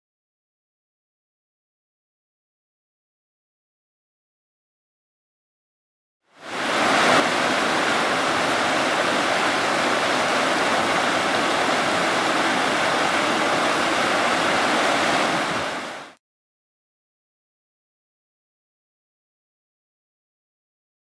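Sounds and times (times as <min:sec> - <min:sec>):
creek rushing over rocks: 0:06.4 - 0:16.2.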